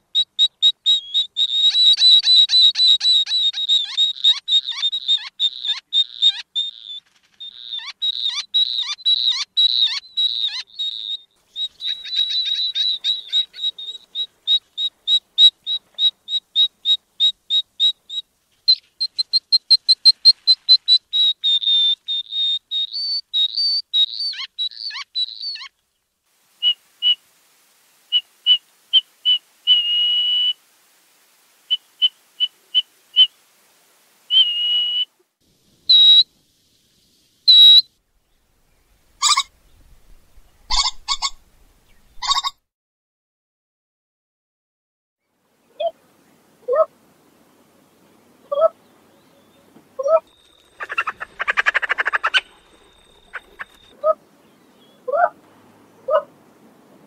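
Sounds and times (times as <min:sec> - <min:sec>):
bird whistled calls: 0:00.6 - 0:18.2, 0:20.8 - 0:25.7, 0:29.2 - 0:30.6, 0:34.3 - 0:35.1, 0:35.9 - 0:36.3, 0:37.5 - 0:37.9.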